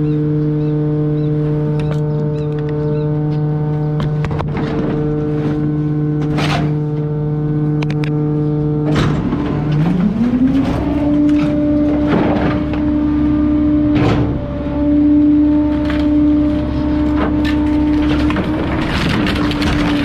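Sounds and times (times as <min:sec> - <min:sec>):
garbage truck engine running: 0:00.0 - 0:20.0.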